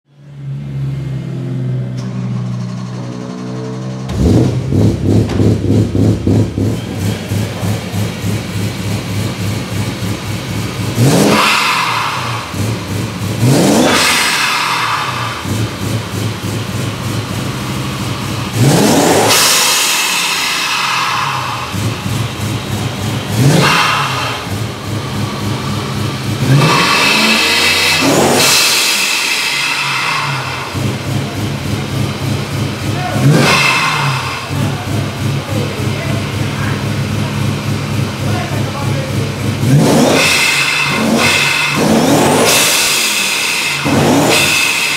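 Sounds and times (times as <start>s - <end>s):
car engine idling and revving: 0.0s - 44.9s
supercharger whine: 0.1s - 44.9s
blow-off valve hiss: 19.2s - 22.2s, 40.2s - 44.9s.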